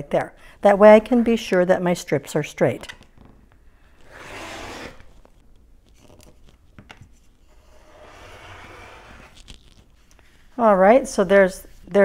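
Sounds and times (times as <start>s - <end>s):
rotary cutter cutting fabric: 4.0s - 5.1s, 7.8s - 9.4s.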